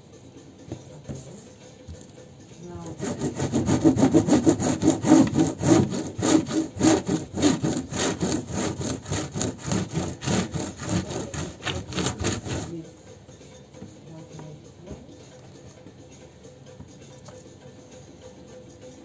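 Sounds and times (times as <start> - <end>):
bamboo mat rubbing and rattling: 3.0 - 12.8.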